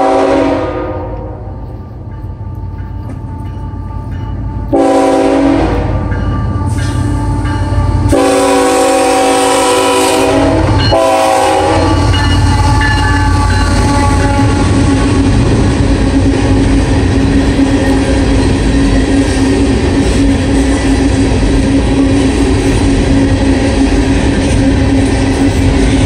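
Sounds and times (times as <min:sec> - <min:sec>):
locomotive air horn blasts: 0:00.0 - 0:01.6, 0:04.7 - 0:15.2
train rumbling: 0:00.0 - 0:26.0.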